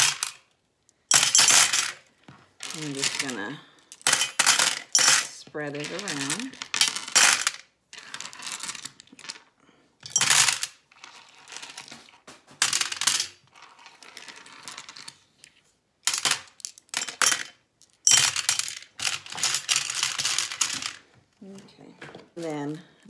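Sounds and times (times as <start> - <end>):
glass gems clinking: 1.1 - 2.0, 2.7 - 7.5, 16.2 - 21.0.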